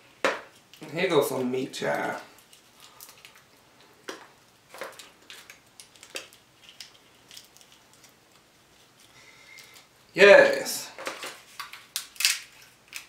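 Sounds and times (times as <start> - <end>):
shell crackling: 0.2 - 13.0
crab shell snapping: 11.6 - 13.0.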